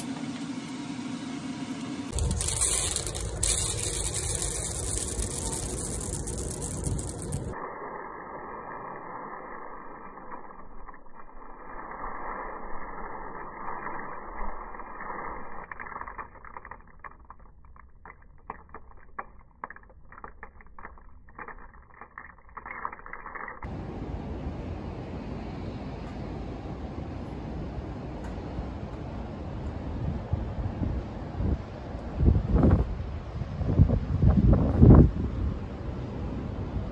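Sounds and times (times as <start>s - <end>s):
coffee beans rattling in basket: 2.1s - 7.6s, 13.8s - 23.7s.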